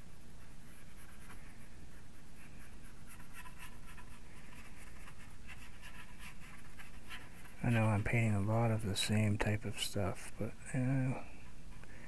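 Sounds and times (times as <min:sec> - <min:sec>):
brush scratching on board: 0:00.4 - 0:08.4.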